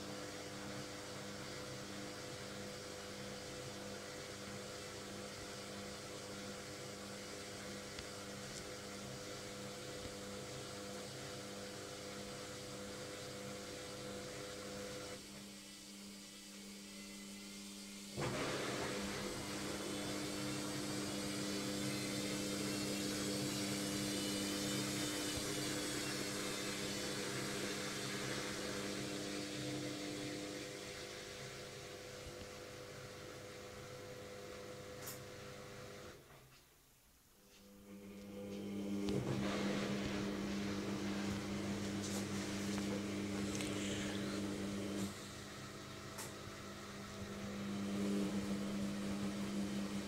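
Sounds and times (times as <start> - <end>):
washing machine drum spinning: 18.0 - 32.2, 38.0 - 50.0.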